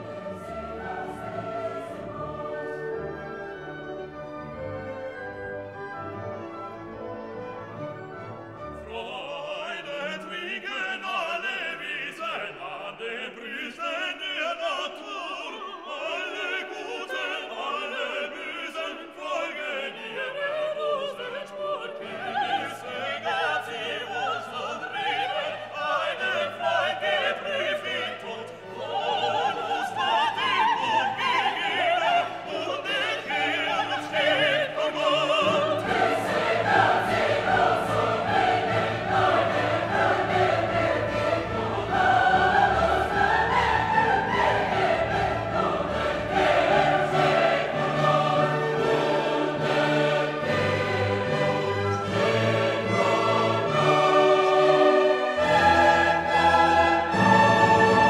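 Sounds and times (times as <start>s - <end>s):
operatic singing: 0.0s - 4.6s, 8.7s - 58.0s
orchestra playing: 0.0s - 10.6s, 26.6s - 58.0s
choir singing: 0.0s - 58.0s.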